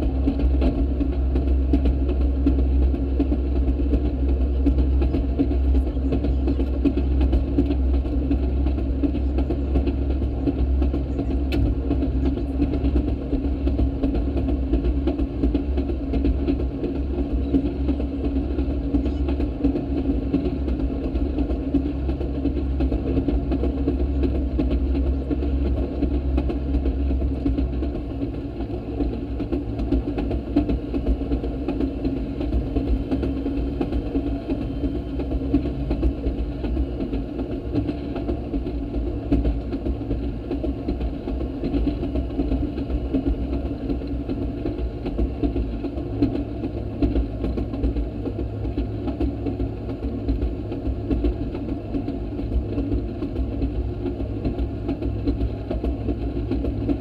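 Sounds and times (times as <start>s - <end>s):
small engine running: 0.0s - 57.0s
wheels rumbling on track: 0.0s - 57.0s.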